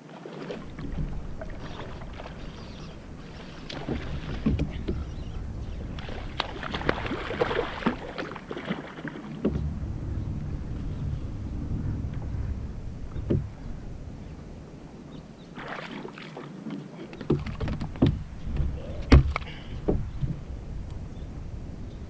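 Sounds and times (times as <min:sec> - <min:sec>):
low rumble of water under kayak: 0:00.0 - 0:22.0
fish splashing and thrashing: 0:00.2 - 0:11.1, 0:15.6 - 0:20.1
sharp knocks and thumps: 0:03.6 - 0:10.0, 0:13.1 - 0:13.6, 0:17.1 - 0:20.4.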